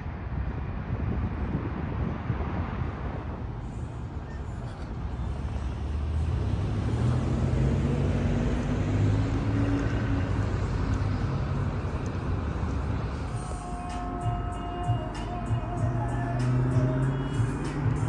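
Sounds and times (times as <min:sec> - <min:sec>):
car driving past: 0:04.7 - 0:13.5.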